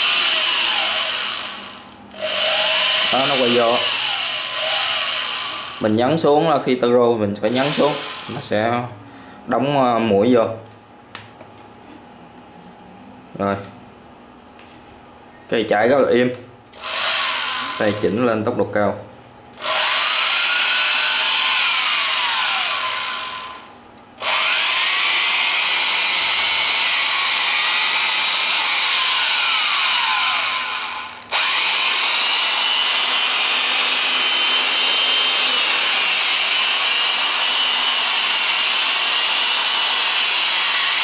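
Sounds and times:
electric drill motor whine: 0:00.0 - 0:05.9, 0:07.5 - 0:08.5, 0:16.8 - 0:18.1, 0:19.6 - 0:41.0.

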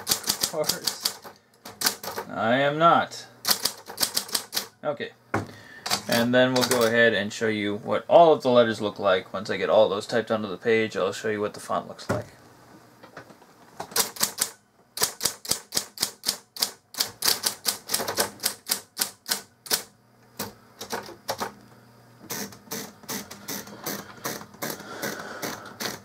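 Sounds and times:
typewriter keys clacking: 0:00.0 - 0:02.3, 0:03.4 - 0:04.7, 0:13.9 - 0:19.9
typewriter motor hum: 0:00.0 - 0:02.3, 0:03.4 - 0:04.8, 0:13.9 - 0:21.6, 0:22.2 - 0:26.0.

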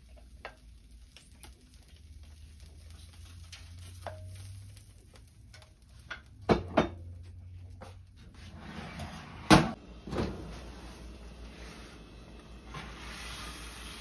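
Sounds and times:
rack scraping: 0:08.4 - 0:10.8.

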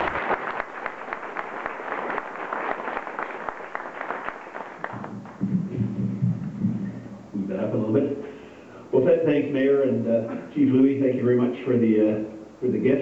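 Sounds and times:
crowd applauding: 0:00.0 - 0:06.2
man speaking: 0:07.4 - 0:13.0.

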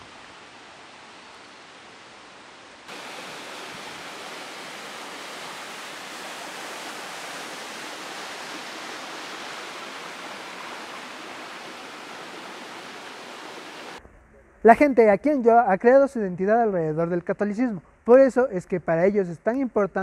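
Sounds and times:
stream rushing over stones: 0:02.8 - 0:14.0.

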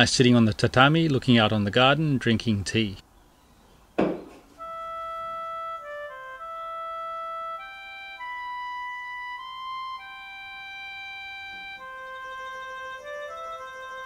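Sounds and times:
slow wind instrument melody: 0:04.5 - 0:14.0.

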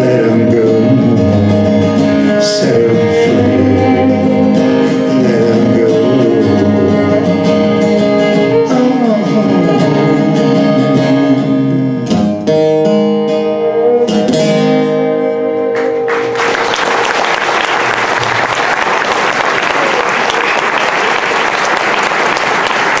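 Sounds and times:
acoustic guitar and violin: 0:00.0 - 0:16.4
audience applause: 0:15.8 - 0:23.0.

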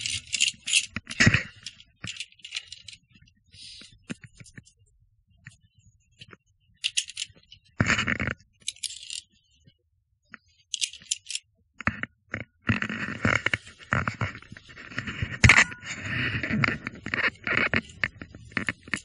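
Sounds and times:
carabiners clinking on steel cable: 0:00.0 - 0:03.0, 0:06.8 - 0:07.5, 0:08.6 - 0:09.3, 0:10.7 - 0:11.4
metal scraping: 0:13.4 - 0:19.0.

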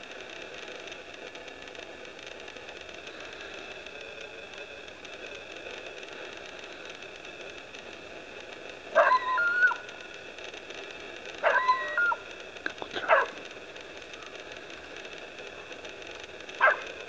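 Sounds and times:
steady hiss: 0:00.0 - 0:17.0
dog yelping: 0:09.0 - 0:09.9, 0:11.4 - 0:12.2, 0:13.0 - 0:13.4, 0:16.6 - 0:17.0.

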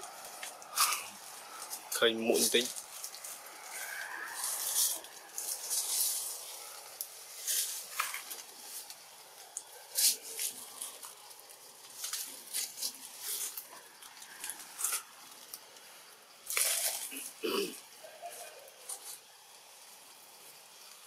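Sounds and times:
faint hiss: 0:00.0 - 0:21.0
rustling and crackling: 0:00.0 - 0:21.0.

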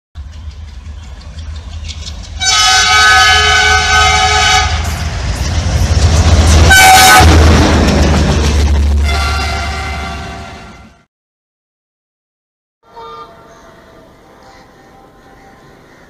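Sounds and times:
locomotive engine low rumble: 0:00.2 - 0:10.7
locomotive air horn: 0:02.4 - 0:05.0, 0:06.6 - 0:07.6, 0:09.0 - 0:11.0, 0:12.8 - 0:13.5.

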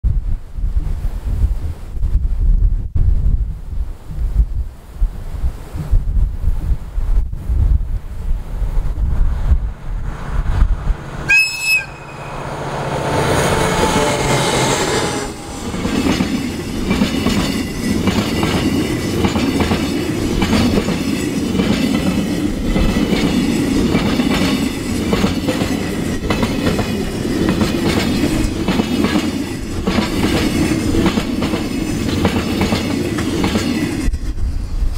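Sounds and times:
locomotive engines passing: 0:09.2 - 0:34.2
locomotive whistle blast: 0:11.3 - 0:12.6
wheels clicking over rail joints: 0:15.7 - 0:34.4.

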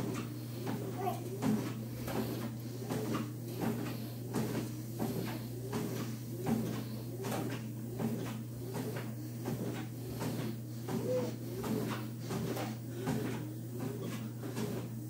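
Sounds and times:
footfalls on treadmill belt: 0:00.0 - 0:15.0
treadmill motor hum: 0:00.0 - 0:15.0.

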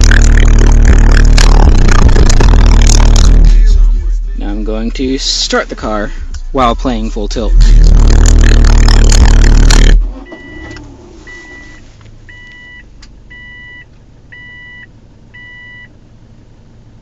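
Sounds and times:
car stereo music with heavy bass: 0:00.0 - 0:14.8
car engine running: 0:00.0 - 0:17.0
dashboard warning chime beeping: 0:10.1 - 0:15.9.

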